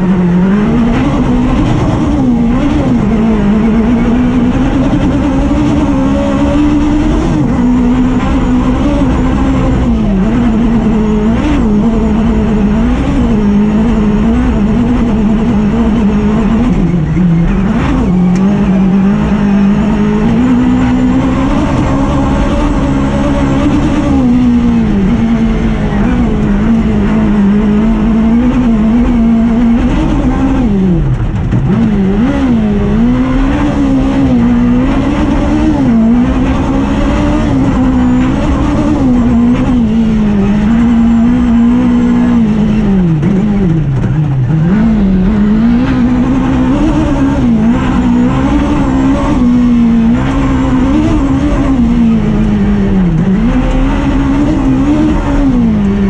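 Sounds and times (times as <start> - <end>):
motorcycle engine revving hard: 0.0 - 56.0.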